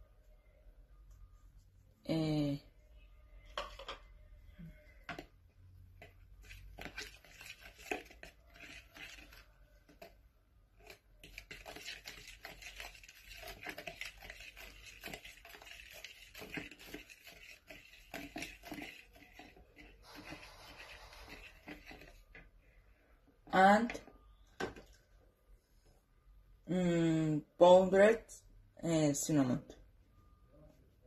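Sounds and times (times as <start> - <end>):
utensil scraping plastic bowl: 5.9 - 22.5.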